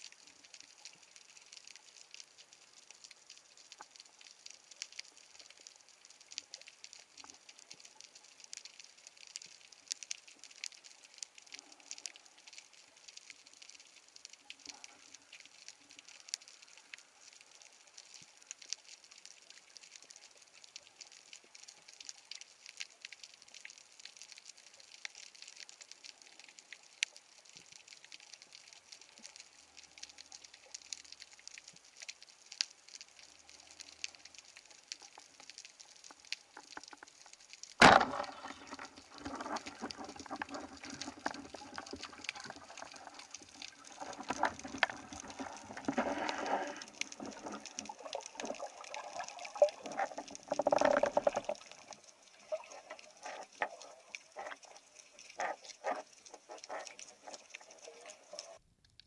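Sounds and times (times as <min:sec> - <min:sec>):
faint underwater crackle: 0:00.0 - 0:59.0
churning water: 0:37.8 - 0:54.8.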